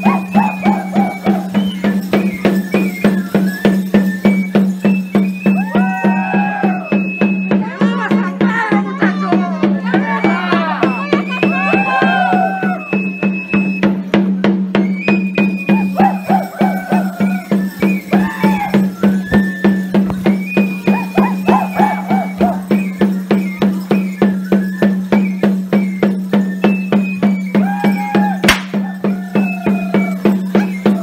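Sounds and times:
folk melody with bending notes: 0:00.0 - 0:31.0
steady drum beat: 0:00.0 - 0:31.0
sharp crack: 0:28.5 - 0:28.8.

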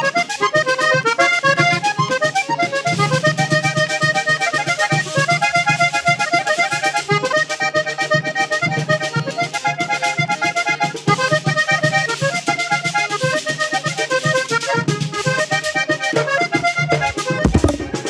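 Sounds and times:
button accordion melody: 0:00.0 - 0:18.0
hand drum beat: 0:16.9 - 0:18.0
scraper rhythm: 0:16.9 - 0:18.0.

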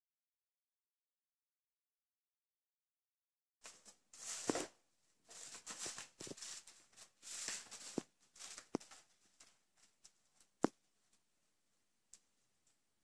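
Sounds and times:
kitten scratching crinkling pad: 0:03.6 - 0:10.6.

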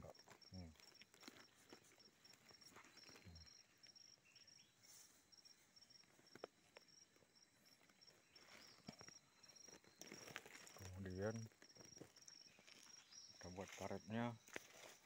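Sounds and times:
insect chirping: 0:00.0 - 0:15.0
soft scrapes in soil: 0:04.8 - 0:05.7.

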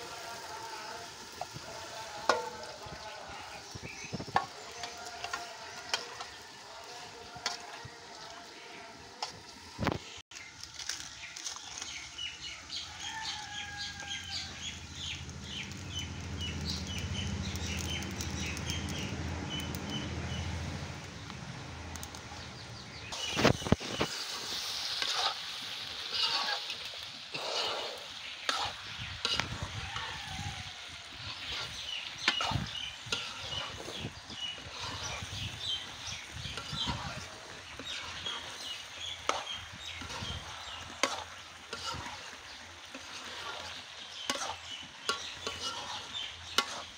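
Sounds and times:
spatula scraping in a wok: 0:00.1 - 0:10.1, 0:23.1 - 0:46.9.

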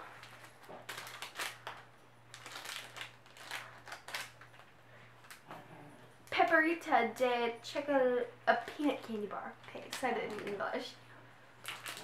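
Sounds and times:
plastic candy wrapper crinkling: 0:00.0 - 0:05.4, 0:08.6 - 0:11.0, 0:11.6 - 0:12.0.

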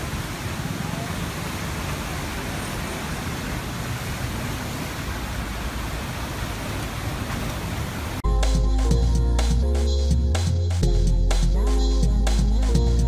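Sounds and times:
floodwater rushing through spillway: 0:00.0 - 0:08.2
music with steady beat and bass: 0:08.2 - 0:13.0.

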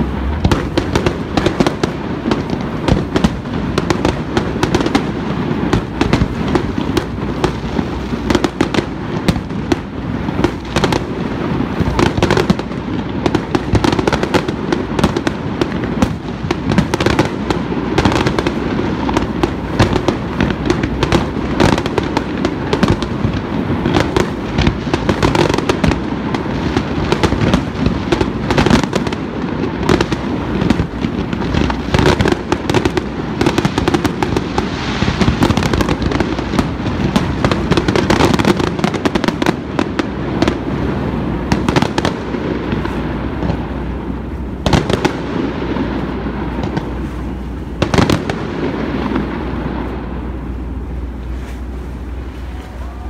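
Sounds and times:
sharp bangs: 0:00.0 - 0:29.3
fireworks crackling: 0:00.0 - 0:53.0
fireworks launching and bursting: 0:00.0 - 0:53.0
rolling rumble: 0:00.0 - 0:53.0.

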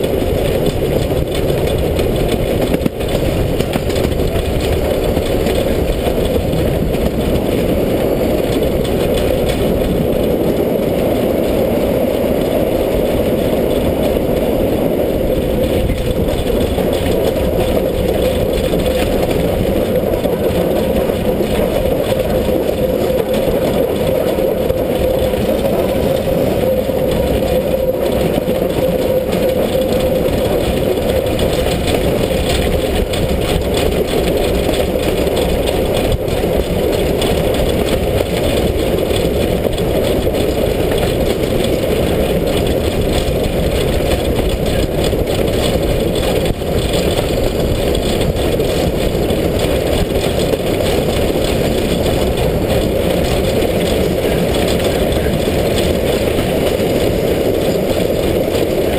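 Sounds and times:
steam locomotive running: 0:00.0 - 0:58.9
wind over microphone: 0:00.0 - 0:58.9
rattle: 0:13.3 - 0:58.9.

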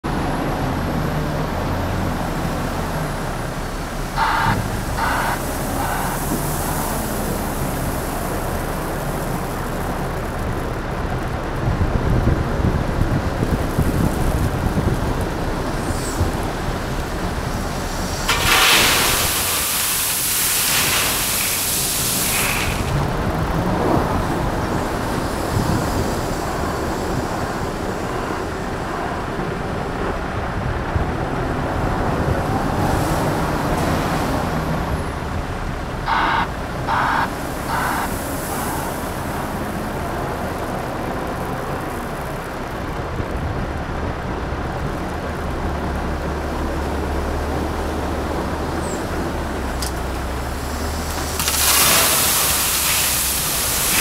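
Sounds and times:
wheel loader diesel engine: 0:00.0 - 0:54.0
hissing pulses: 0:04.0 - 0:08.8, 0:36.1 - 0:39.5
gravel pouring into steel trailer: 0:16.2 - 0:23.8, 0:50.5 - 0:54.0.

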